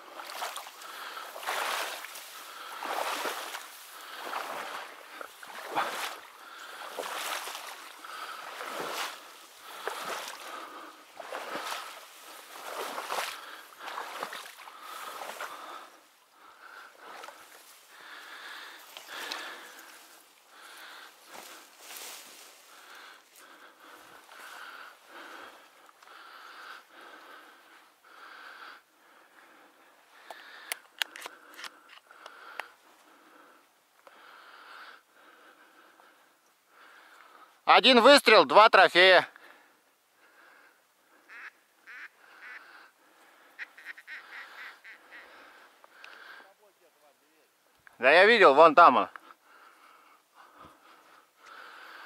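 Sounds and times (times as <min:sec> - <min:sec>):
splashing through shallow water: 0:00.0 - 0:16.1
person breathing slowly: 0:00.0 - 0:37.6, 0:39.3 - 0:46.8, 0:49.1 - 0:52.0.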